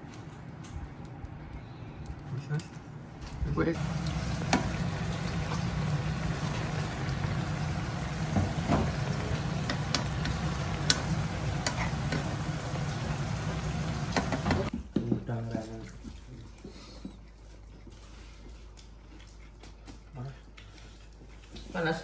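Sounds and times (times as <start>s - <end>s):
bubbling and sizzling: 3.8s - 14.7s
gas stove rumble: 3.8s - 14.7s.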